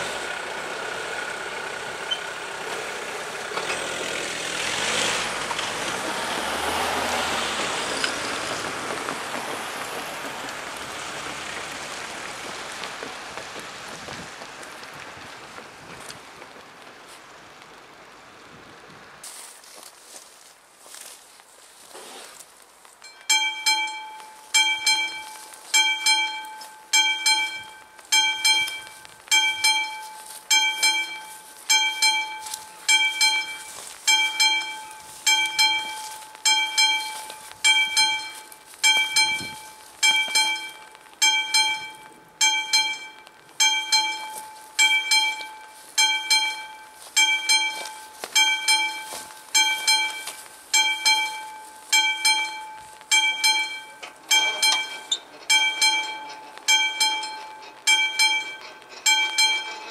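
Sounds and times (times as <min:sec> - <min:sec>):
level crossing bell ringing: 0:23.0 - 0:59.9.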